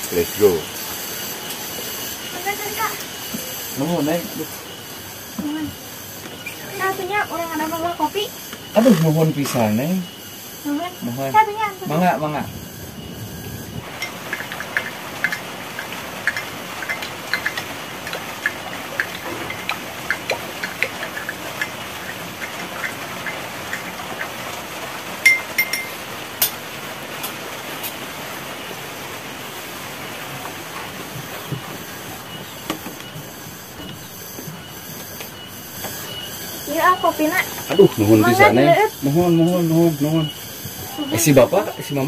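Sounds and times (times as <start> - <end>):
heavy rain: 11.3 - 32.3
drinking glasses clinking: 25.2 - 26.6.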